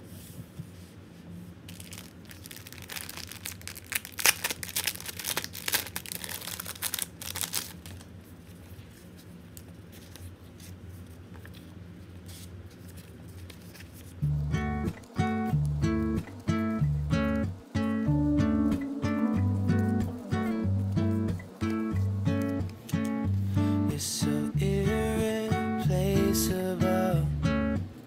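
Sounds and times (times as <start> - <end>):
plastic sleeve crinkling and tearing: 1.6 - 14.3, 21.6 - 23.2
paper stickers rustling: 1.6 - 16.5, 18.8 - 23.3.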